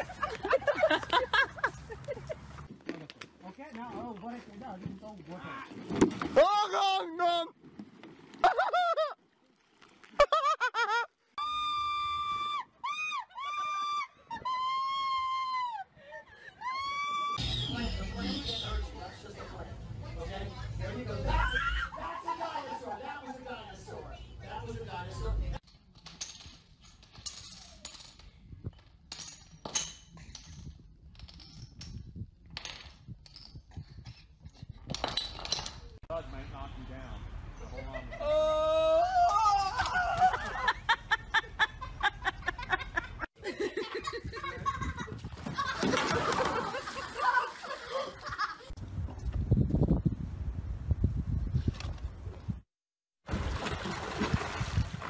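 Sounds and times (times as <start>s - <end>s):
woman screaming: 11.4s - 15.9s, 16.6s - 17.4s, 38.2s - 40.3s
light clicks and clinks of blocks: 25.6s - 32.0s.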